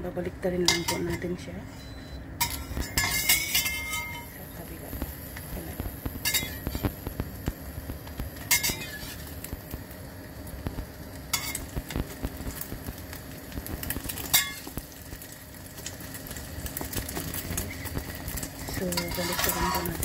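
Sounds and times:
metal spatula scraping pan: 0:02.4 - 0:04.4, 0:06.2 - 0:06.9, 0:08.5 - 0:09.3, 0:18.7 - 0:20.0
egg and bread sizzling in oil: 0:02.4 - 0:20.0.

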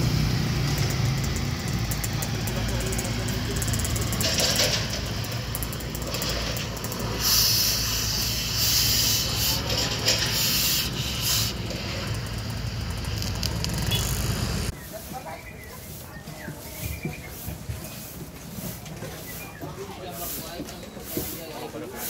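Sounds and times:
construction machinery engine humming: 0:00.0 - 0:22.0
short hissing bursts: 0:06.9 - 0:12.1.

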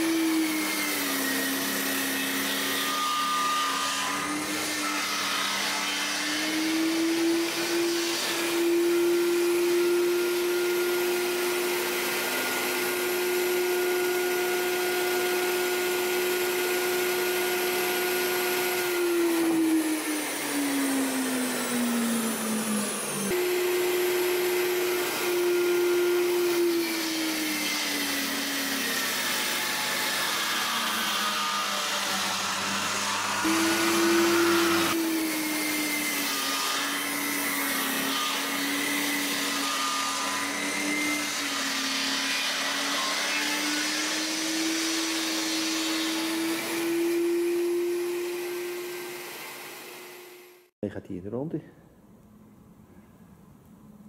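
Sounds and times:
circular saw cutting wood: 0:00.0 - 0:50.7.

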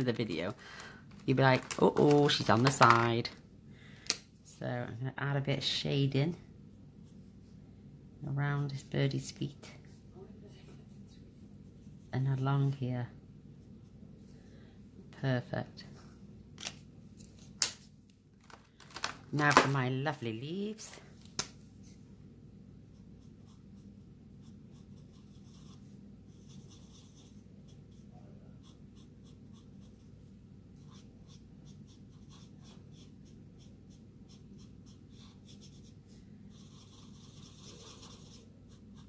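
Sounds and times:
low background hum: 0:00.0 - 0:39.0
marker scratching on card: 0:23.2 - 0:30.2, 0:30.8 - 0:39.0.

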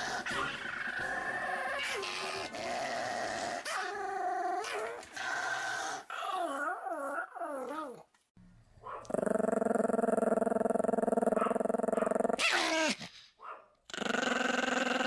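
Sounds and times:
dog growling and whining: 0:00.0 - 0:08.2, 0:09.0 - 0:13.2, 0:13.9 - 0:15.0.

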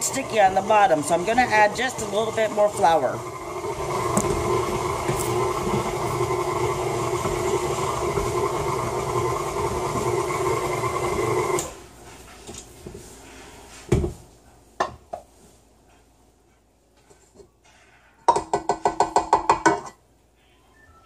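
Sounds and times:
stand mixer kneading dough: 0:00.0 - 0:11.8.

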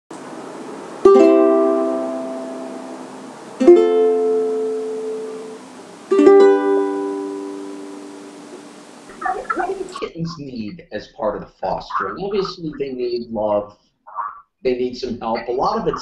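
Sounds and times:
strummed string chords: 0:01.0 - 0:08.7.

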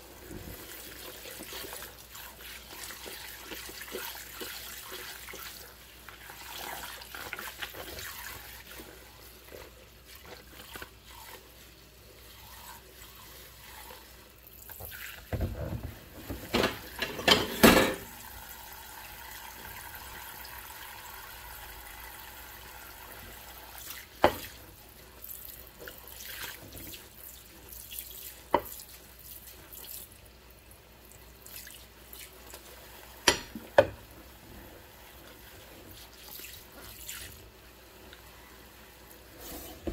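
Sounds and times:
dishes being scrubbed: 0:00.3 - 0:18.1, 0:38.3 - 0:39.9
dishes clattering in sink: 0:14.8 - 0:18.2, 0:24.2 - 0:24.6, 0:33.2 - 0:34.1.

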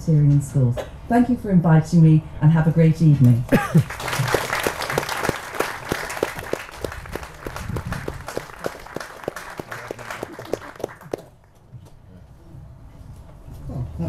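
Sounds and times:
audience applauding: 0:03.6 - 0:11.6.

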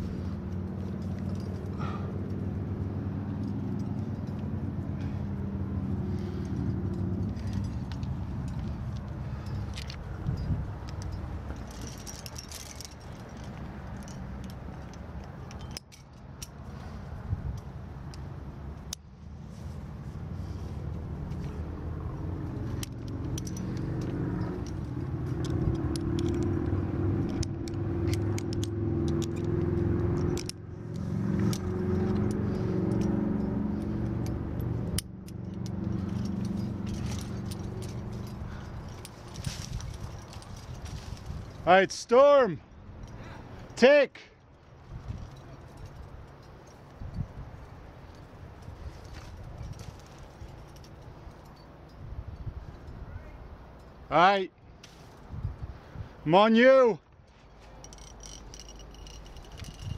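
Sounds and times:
metal climbing gear clinking: 0:00.0 - 0:59.9
steel chains knocking together: 0:06.3 - 0:16.6, 0:22.6 - 0:41.5, 0:57.5 - 0:59.9.

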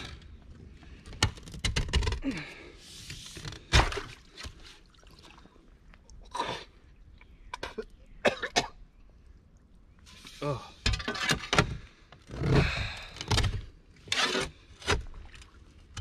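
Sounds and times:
water sloshing: 0:03.6 - 0:08.0, 0:13.7 - 0:16.0.

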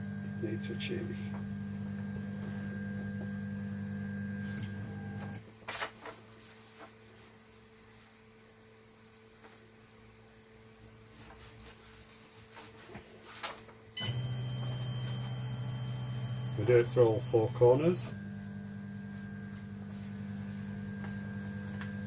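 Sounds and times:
paper rustling: 0:05.6 - 0:07.2, 0:11.2 - 0:13.8
printer humming: 0:14.0 - 0:18.2.

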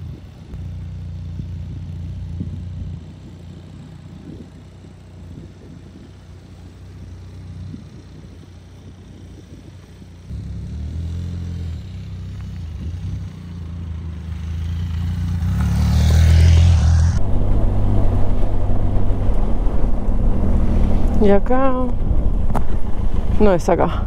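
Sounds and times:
motorcycle engine running: 0:00.0 - 0:24.0
wind rushing noise: 0:15.4 - 0:24.0.

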